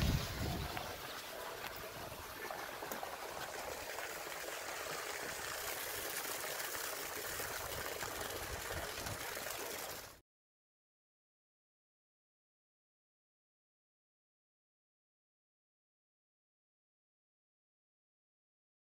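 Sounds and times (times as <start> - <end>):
running water rushing: 0.0 - 10.2.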